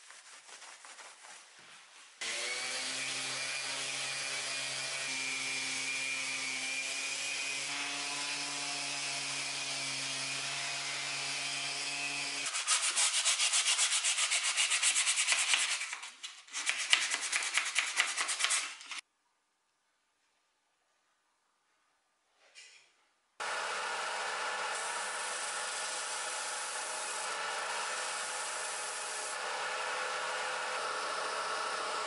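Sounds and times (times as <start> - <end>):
hand sanding wood with sandpaper: 0.0 - 2.0, 12.4 - 19.0
orbital sander on wood: 2.2 - 13.2, 23.4 - 32.0.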